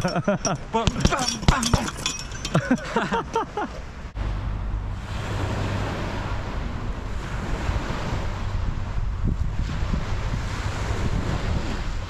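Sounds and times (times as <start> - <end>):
person talking: 0.0 - 3.1
wind buffeting microphone: 3.8 - 12.0
small waves washing on shore: 5.0 - 12.0.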